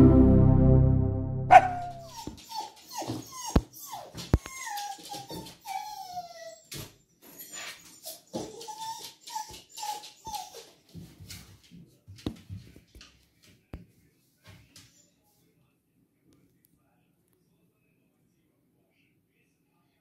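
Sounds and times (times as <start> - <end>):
dog whining: 1.5 - 6.7, 7.4 - 10.7.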